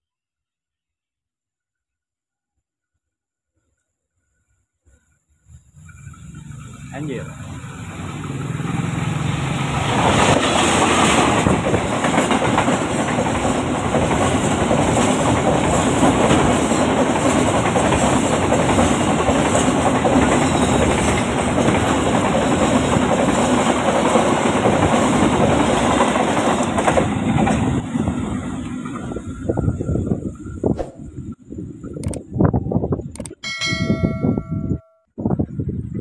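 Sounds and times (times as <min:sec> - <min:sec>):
diesel locomotive passing: 0:05.8 - 0:30.6
train wheels rushing on rails: 0:06.4 - 0:31.1.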